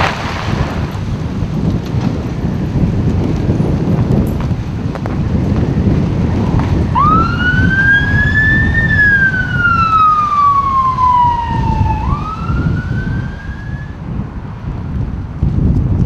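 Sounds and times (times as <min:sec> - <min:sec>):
wind rumble on microphone: 0:00.0 - 0:16.0
siren wailing: 0:06.9 - 0:14.0.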